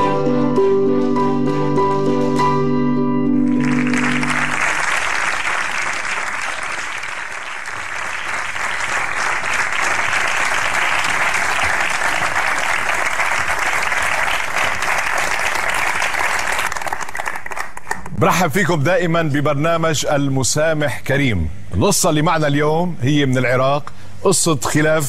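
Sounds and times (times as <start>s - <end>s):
studio audience applauding: 3.4s - 18.2s.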